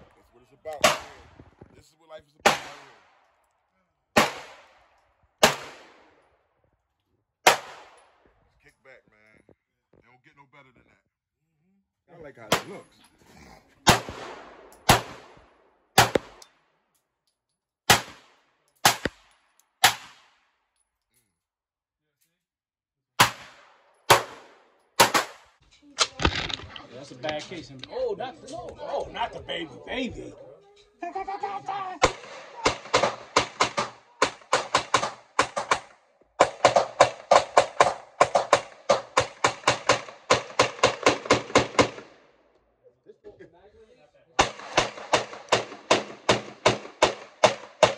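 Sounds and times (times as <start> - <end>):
pistol shots: 0.7 - 1.5, 2.4 - 3.2, 4.2 - 6.2, 7.4 - 8.2, 13.8 - 16.5, 17.9 - 20.5, 23.2 - 26.7, 32.0 - 42.3, 44.4 - 47.9
rapid gunshots: 0.8 - 1.4, 2.4 - 3.0, 4.2 - 4.6, 5.4 - 6.1, 13.9 - 15.4, 16.0 - 16.4, 17.9 - 19.2, 23.2 - 25.5, 32.0 - 42.2, 44.4 - 47.9.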